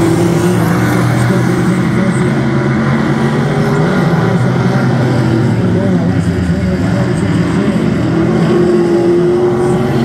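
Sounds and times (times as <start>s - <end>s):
race car engines droning: 0.0s - 10.0s.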